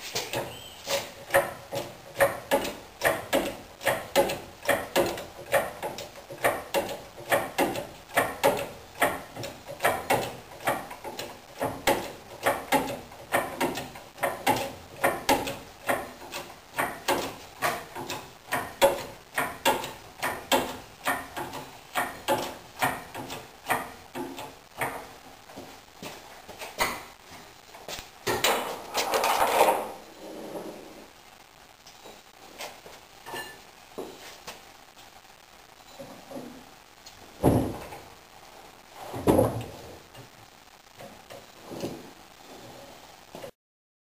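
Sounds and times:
hand crane clanking and creaking: 0.1s - 25.2s.

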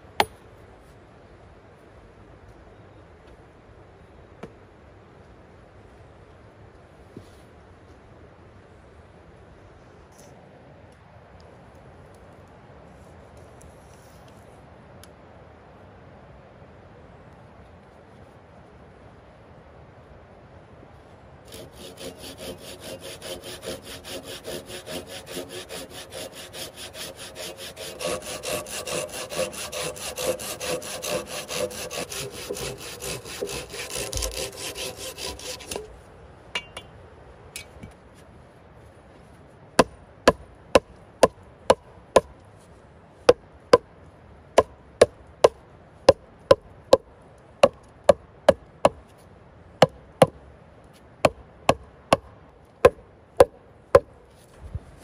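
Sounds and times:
hand saw cutting a log: 21.5s - 35.9s.

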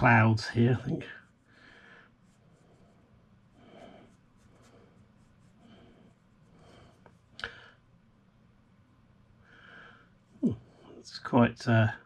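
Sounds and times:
sponge applicator rubbing paper: 2.2s - 3.0s, 3.8s - 7.3s.

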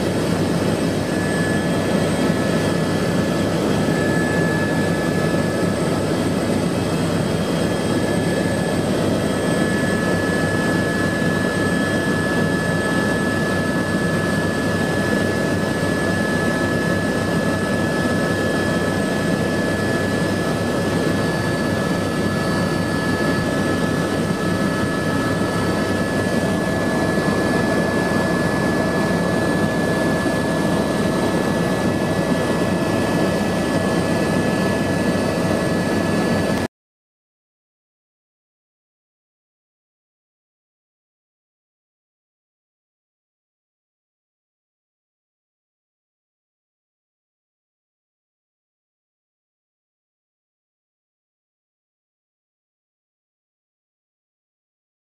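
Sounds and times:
engine and rotor rumble: 0.0s - 36.7s
turbine whine: 0.0s - 36.7s.

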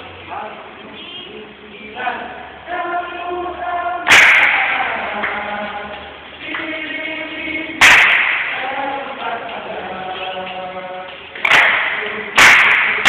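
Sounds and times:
group chanting in unison: 1.9s - 13.0s
group claps: 4.0s - 13.0s.

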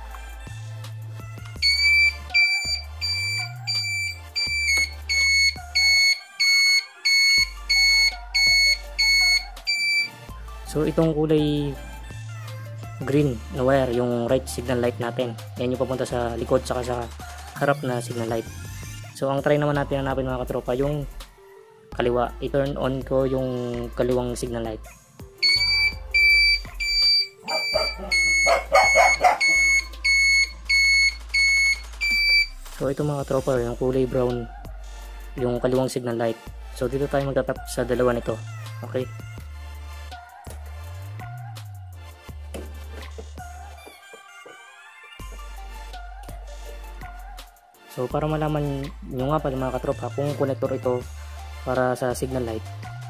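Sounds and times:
turn signal beeping: 1.6s - 10.1s, 25.4s - 32.6s
dog barking: 27.4s - 29.8s.

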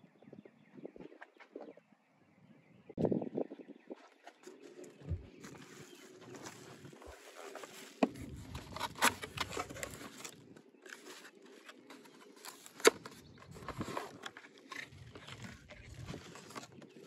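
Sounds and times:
cardboard scraping: 4.4s - 17.0s
bubble wrap rustling: 5.5s - 17.0s.

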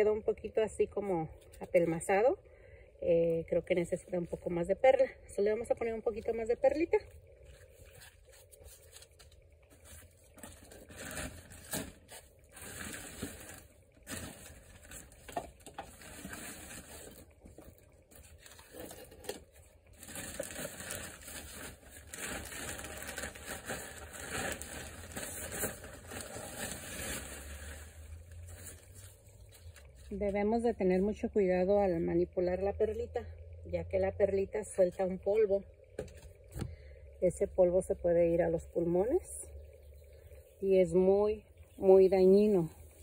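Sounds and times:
potting mix rustling by hand: 3.0s - 31.9s.

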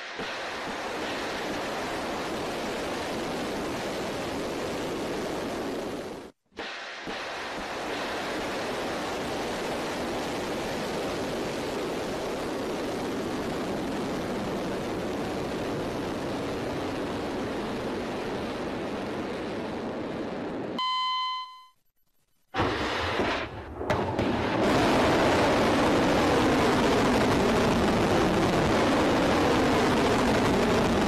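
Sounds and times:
electronic beep: 20.8s - 21.8s.

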